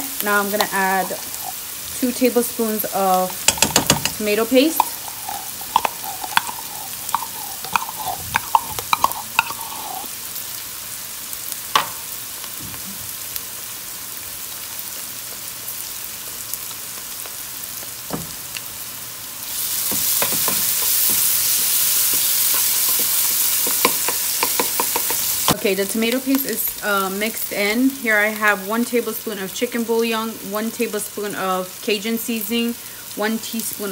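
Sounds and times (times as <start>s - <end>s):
vegetables sizzling in oil: 0.0s - 33.9s
spoon clicking against pan: 3.4s - 4.2s, 4.8s - 10.0s, 22.1s - 25.3s
spoon scraping a metal can: 3.5s - 10.1s.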